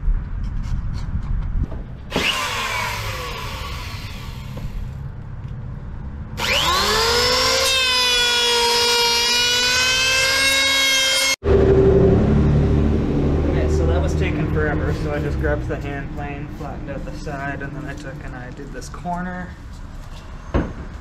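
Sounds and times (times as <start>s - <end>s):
electric hand planer whining: 2.1s - 4.8s, 6.4s - 11.4s.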